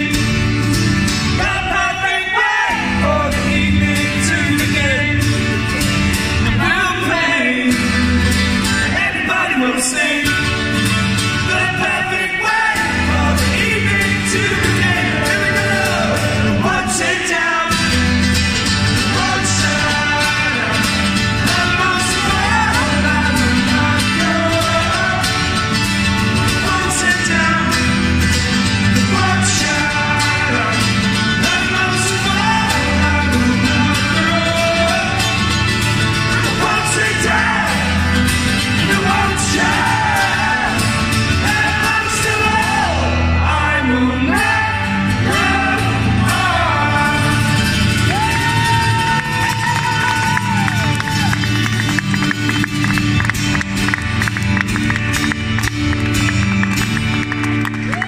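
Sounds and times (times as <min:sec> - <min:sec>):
man singing: 0:00.0 - 0:50.9
acoustic guitar strumming: 0:00.0 - 0:58.0.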